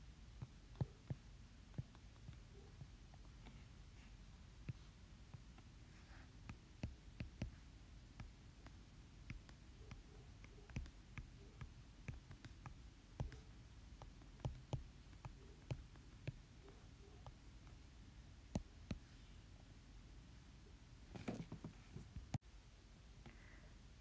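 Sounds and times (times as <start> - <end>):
stylus tapping on tablet: 6.4 - 17.8, 18.4 - 19.0.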